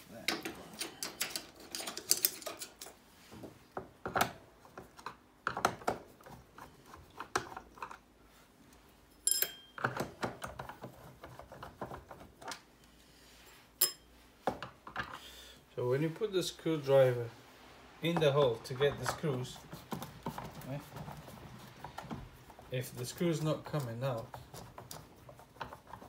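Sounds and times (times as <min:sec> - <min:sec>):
sharp metal clinks: 0:09.1 - 0:09.8.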